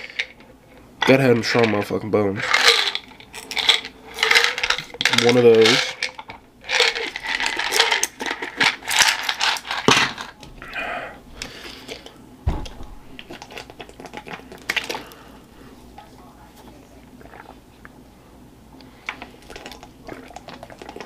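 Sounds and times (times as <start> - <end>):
pills rattling in bottles: 2.4 - 10.4
dull thump: 12.4 - 13.1.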